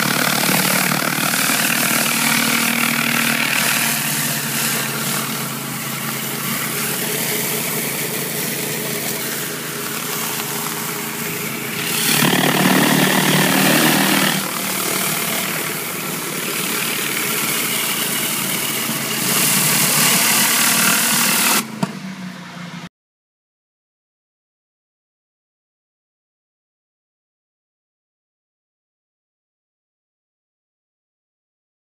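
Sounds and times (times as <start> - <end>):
pressure washer engine hum: 0.0 - 21.8
water spray hissing on concrete: 19.4 - 21.6.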